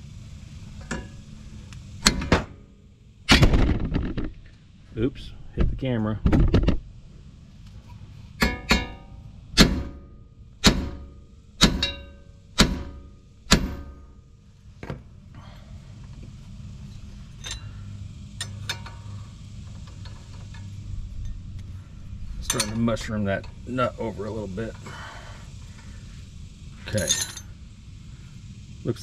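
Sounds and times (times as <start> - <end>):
hammer striking metal: 8.4 - 14.2
wrench clinks: 17.4 - 17.7, 22.4 - 23.6, 26.9 - 27.5.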